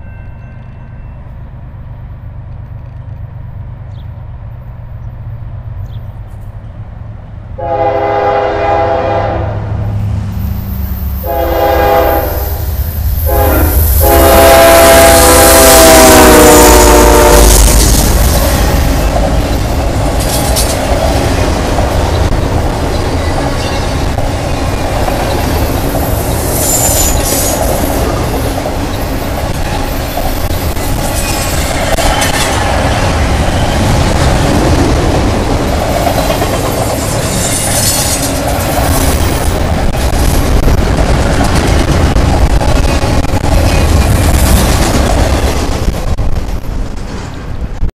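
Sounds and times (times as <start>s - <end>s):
freight train wheels rumbling: 0.0s - 47.9s
train wheels squealing: 24.7s - 28.0s, 28.9s - 32.6s.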